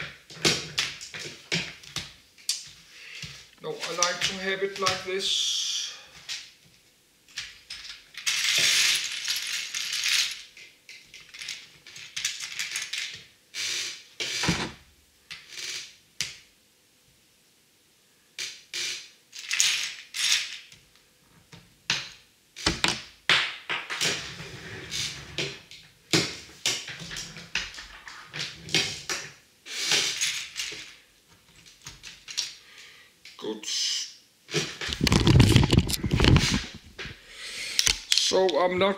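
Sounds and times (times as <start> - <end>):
plastic bricks clattering: 7.7 - 13.2, 34.8 - 37.1.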